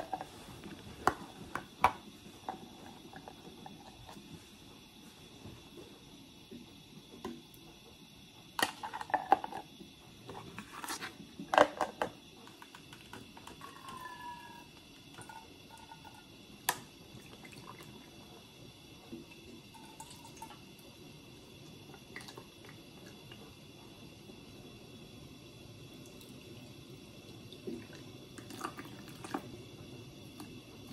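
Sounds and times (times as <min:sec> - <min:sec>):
liquid pouring with gurgle: 0:19.2 - 0:20.8, 0:26.0 - 0:30.9.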